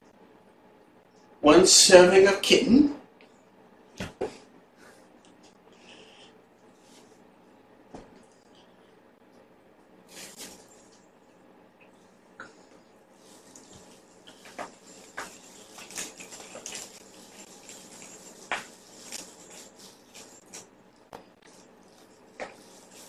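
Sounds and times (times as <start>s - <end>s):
kitten scuffling with fabric toy: 10.1s - 11.0s, 13.2s - 20.7s, 21.5s - 23.0s.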